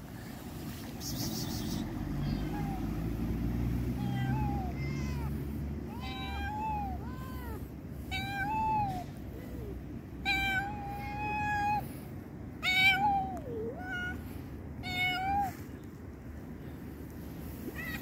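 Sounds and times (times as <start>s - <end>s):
cats meowing: 1.4s - 15.8s, 17.4s - 18.0s.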